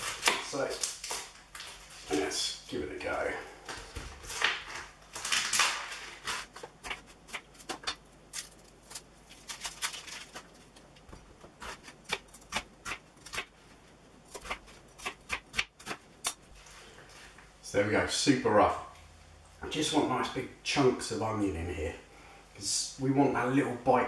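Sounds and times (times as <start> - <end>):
knife chopping onion on board: 11.6 - 13.5, 14.3 - 16.0.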